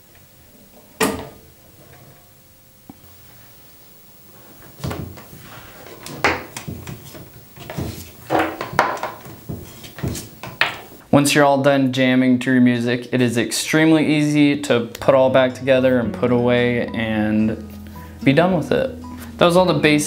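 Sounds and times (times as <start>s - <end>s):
cable knocking and rustling: 4.6s - 11.0s.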